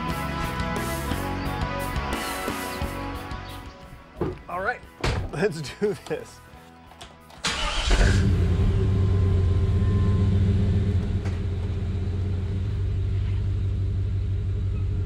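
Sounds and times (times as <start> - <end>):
engine cranking and idling: 7.4 - 15.0.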